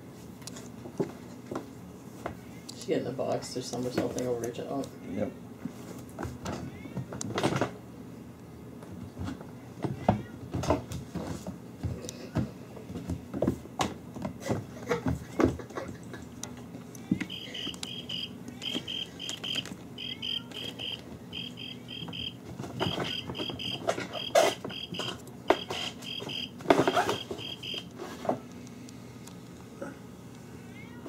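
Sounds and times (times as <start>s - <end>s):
kittens scampering on wooden floor: 14.2s - 28.0s
high chirps: 17.3s - 27.8s.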